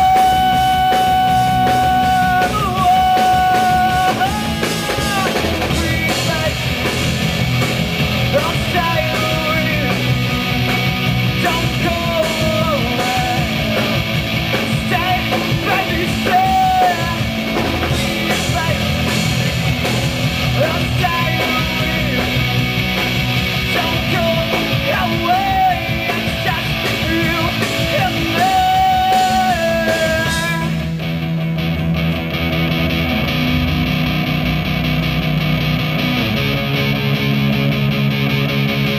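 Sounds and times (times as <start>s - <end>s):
man singing: 0.0s - 7.0s, 8.3s - 10.3s, 11.3s - 19.6s, 20.4s - 22.5s, 23.6s - 31.0s
drum kit: 0.0s - 38.9s
electric guitars: 0.0s - 38.9s.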